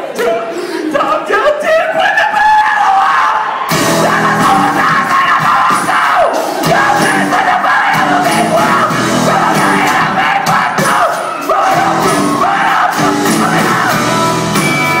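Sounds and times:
shouted vocals: 0:00.0 - 0:15.0
rock band playing: 0:03.7 - 0:15.0.

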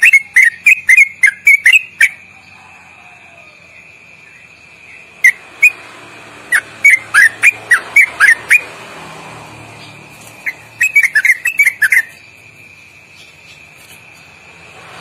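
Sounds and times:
bird singing whistled notes: 0:00.0 - 0:02.4, 0:03.7 - 0:05.8, 0:06.5 - 0:08.7, 0:09.8 - 0:12.4.

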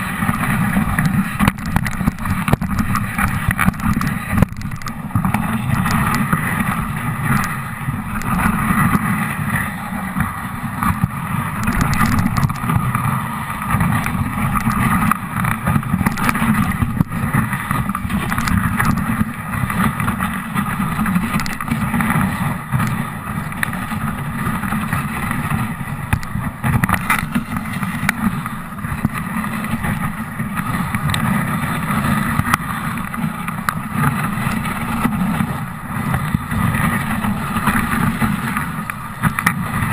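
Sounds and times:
sled runners rumbling on snow: 0:00.0 - 0:39.9
wind buffeting microphone: 0:00.0 - 0:39.9
sled knocking over bumps: 0:00.2 - 0:09.1.

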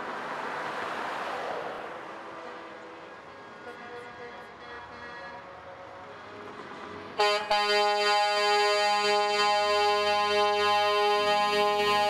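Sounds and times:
truck air horn chord: 0:07.2 - 0:12.0.

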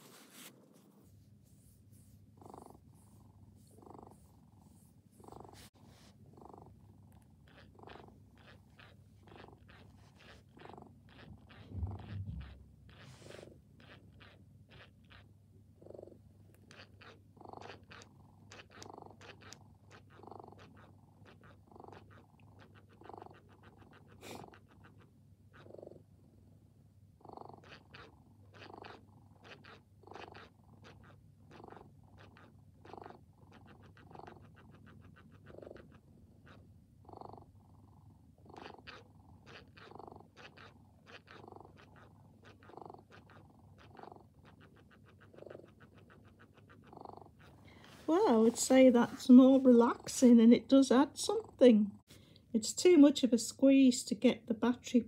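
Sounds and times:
electronic cat purr: 0:02.4 - 0:26.1, 0:27.2 - 0:47.5.

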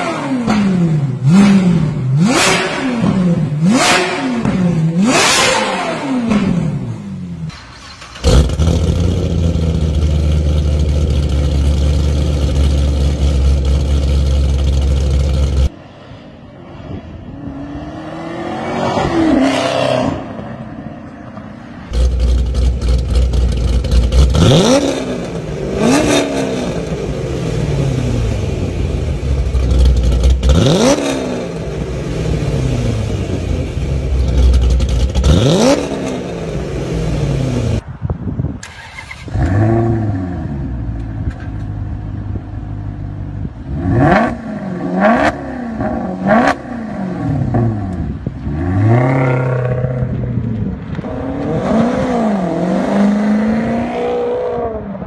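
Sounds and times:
car engine revving: 0:00.0 - 0:15.8, 0:16.9 - 0:37.8, 0:42.8 - 0:55.0
car engine blipped: 0:00.0 - 0:18.3, 0:19.1 - 0:37.8.

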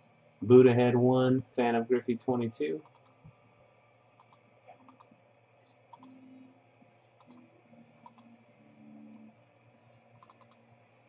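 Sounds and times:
faint computer mouse clicks: 0:02.2 - 0:03.2, 0:04.2 - 0:05.2, 0:05.9 - 0:06.2, 0:07.2 - 0:07.4, 0:08.0 - 0:08.3, 0:10.2 - 0:10.6.

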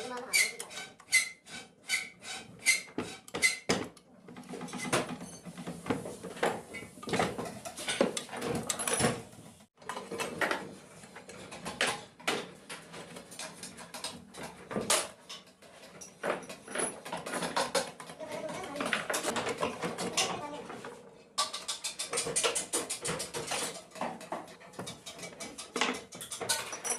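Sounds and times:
metal tools clinking and scraping: 0:06.7 - 0:09.2, 0:13.3 - 0:20.4, 0:21.4 - 0:26.9.

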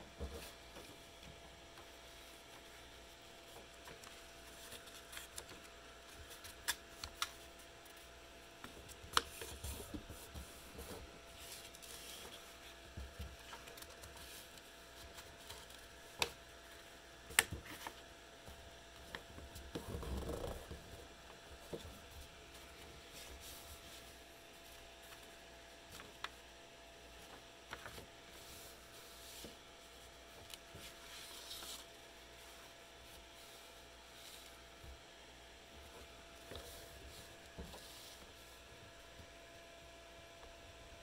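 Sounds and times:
faint steady hum: 0:00.0 - 0:41.0
paper rustling and folding: 0:01.8 - 0:08.0, 0:08.6 - 0:16.4, 0:21.6 - 0:34.9, 0:35.8 - 0:38.7.

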